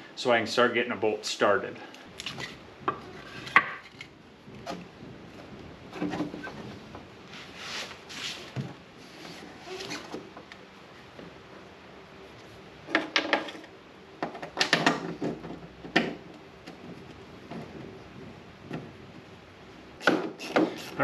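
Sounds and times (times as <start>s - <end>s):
metal clunks and rattles: 2.4s - 7.1s, 14.2s - 19.2s
sharp knocks: 20.0s - 20.8s.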